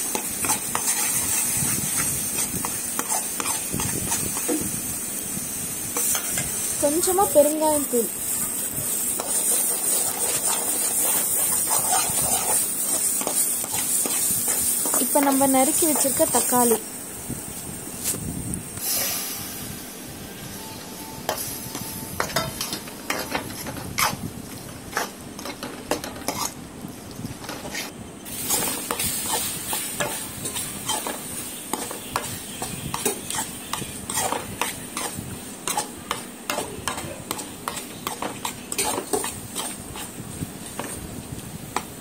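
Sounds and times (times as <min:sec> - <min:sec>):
frying sizzle: 0:00.0 - 0:42.0
spatula scraping metal pan: 0:00.1 - 0:04.4, 0:09.2 - 0:16.2, 0:24.9 - 0:26.6, 0:27.5 - 0:40.2.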